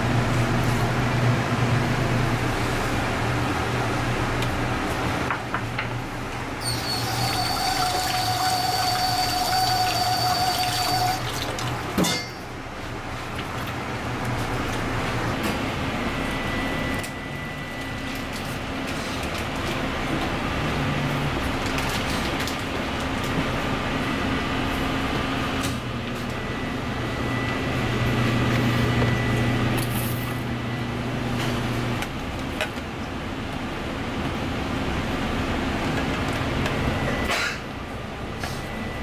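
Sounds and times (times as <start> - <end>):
kitchen machine hum and rushing: 0.0 - 39.0.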